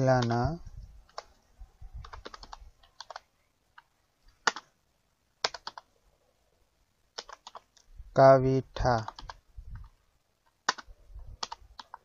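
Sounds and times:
keyboard typing: 0.0s - 1.4s, 2.0s - 4.7s, 5.4s - 5.9s, 7.1s - 7.9s, 8.8s - 12.0s.

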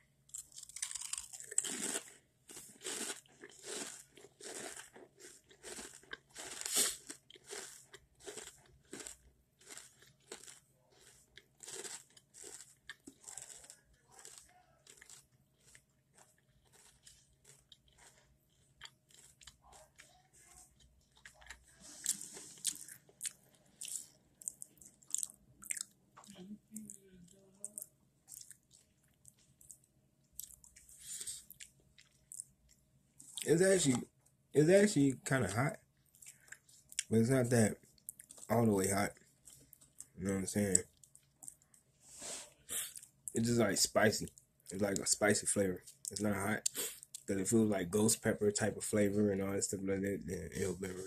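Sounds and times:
soft chewing: 0.2s - 43.4s, 44.0s - 48.2s
crisp crunching: 0.3s - 25.9s.

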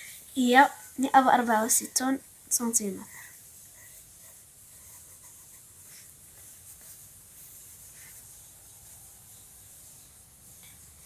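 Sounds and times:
steady hiss: 0.0s - 11.0s
pencil scratching on paper: 3.0s - 11.0s.

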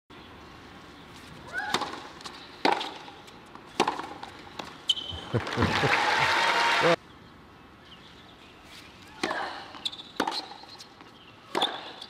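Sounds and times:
racket striking tennis ball: 1.7s - 3.1s, 3.7s - 5.0s
crowd applause: 5.1s - 7.0s.

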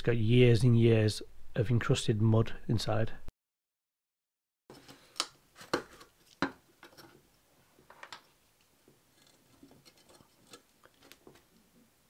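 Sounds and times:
screwdriver clicking and scraping metal: 9.1s - 11.2s.

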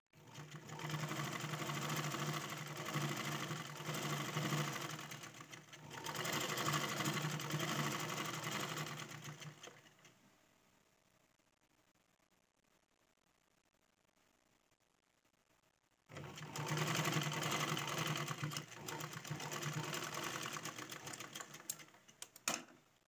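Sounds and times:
sewing machine running: 0.2s - 10.0s, 16.1s - 22.0s.

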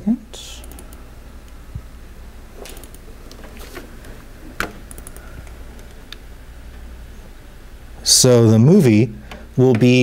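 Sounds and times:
low room hum: 0.0s - 10.0s
laptop keys and trackpad clicking: 2.6s - 3.4s.

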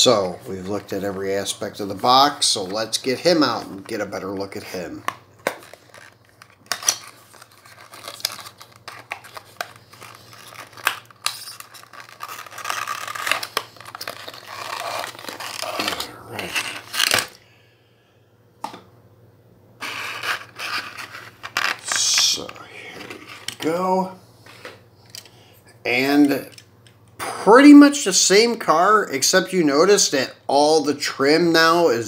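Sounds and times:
card and plastic scraping and rustling: 2.0s - 17.4s, 19.8s - 23.8s.

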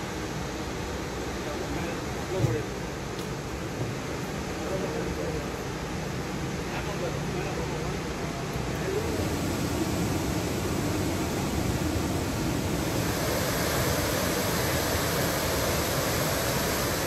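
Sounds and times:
waterfall rushing: 8.9s - 17.0s.

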